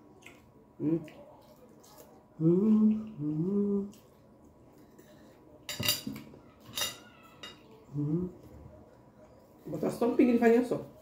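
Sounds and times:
chewing: 0:00.0 - 0:05.6
closed-mouth hum of enjoyment: 0:02.3 - 0:04.2, 0:07.9 - 0:08.6
forks clinking on glass plates: 0:05.7 - 0:07.7.

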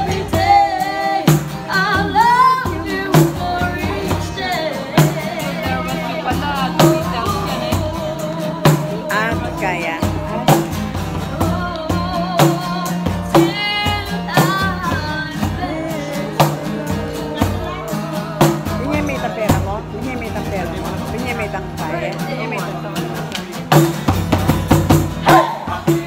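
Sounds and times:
woman singing: 0:00.0 - 0:20.4
conga drums: 0:00.0 - 0:26.0
strummed acoustic guitar: 0:00.0 - 0:26.0.

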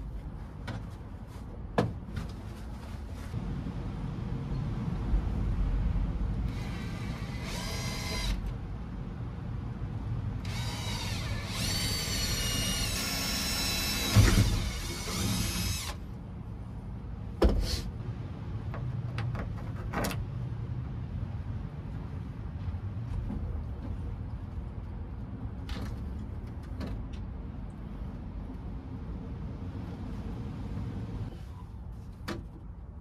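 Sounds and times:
cordless drill drilling into metal: 0:06.6 - 0:08.5, 0:10.4 - 0:16.0.

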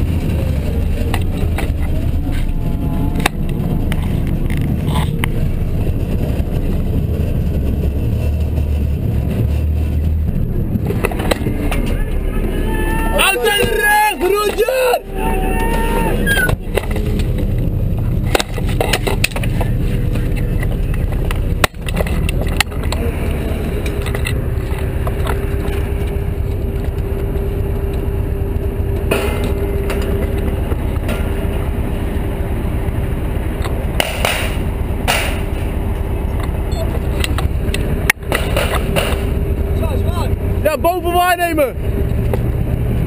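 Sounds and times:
diesel engine low rumble: 0:00.0 - 0:43.0
steady engine whine: 0:00.0 - 0:43.0
knocks and rattles of gear: 0:16.3 - 0:23.1.

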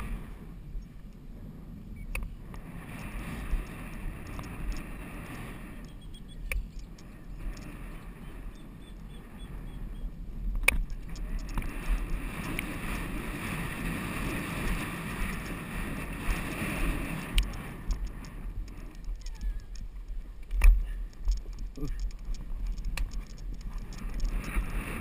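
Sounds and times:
wind on microphone: 0:00.0 - 0:25.0
sharp click: 0:03.6 - 0:07.8, 0:10.6 - 0:11.7.

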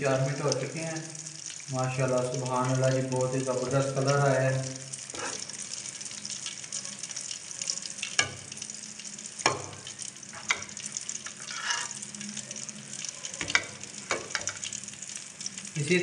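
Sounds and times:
fish deep-frying in oil: 0:00.0 - 0:16.0
metal skimmer knocking on pan: 0:09.4 - 0:10.8.

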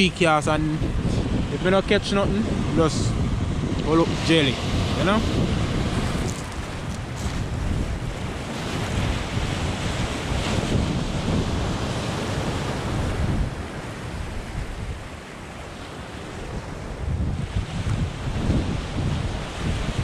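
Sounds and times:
wind buffeting microphone: 0:00.0 - 0:20.0
waves breaking on pebble beach: 0:02.3 - 0:20.0.

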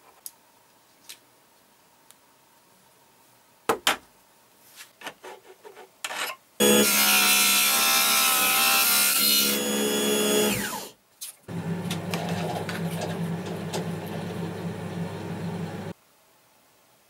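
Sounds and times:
power tool cutting wood: 0:06.6 - 0:10.9.

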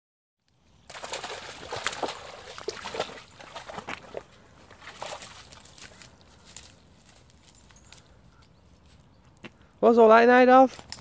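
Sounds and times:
dog paws splashing in water: 0:00.9 - 0:08.1.

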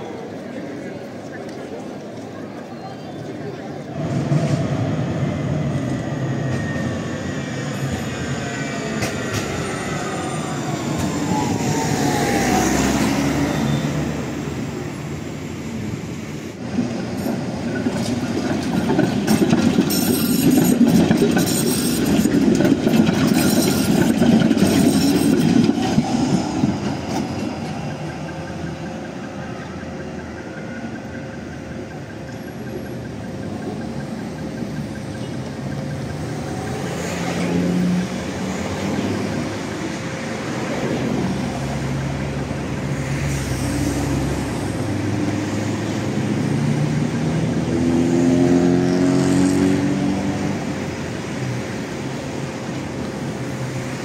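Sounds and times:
street traffic: 0:00.0 - 0:54.0
trams rumbling on tracks: 0:00.0 - 0:54.0
wheels clattering over rail joints: 0:16.7 - 0:41.0.

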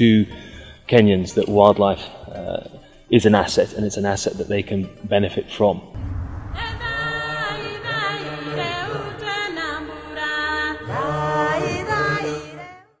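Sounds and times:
steady low drone: 0:06.0 - 0:08.0
chant-like singing voice: 0:06.5 - 0:13.0.

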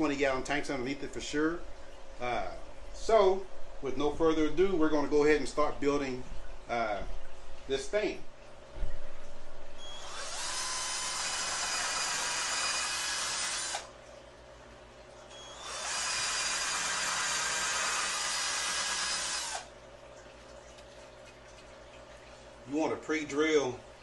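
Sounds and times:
cordless drill boring into wood: 0:09.9 - 0:13.9, 0:15.3 - 0:19.7.

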